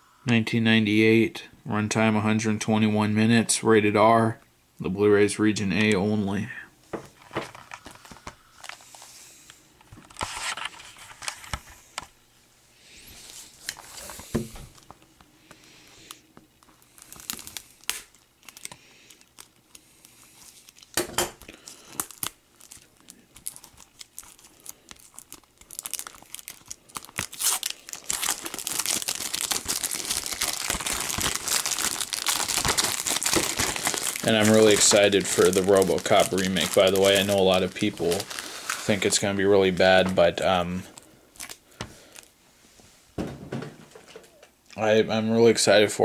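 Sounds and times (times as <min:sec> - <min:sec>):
plastic film crinkling: 0:07.2 - 0:09.1, 0:13.2 - 0:42.3
plastic shrink wrap tearing: 0:16.1 - 0:42.3.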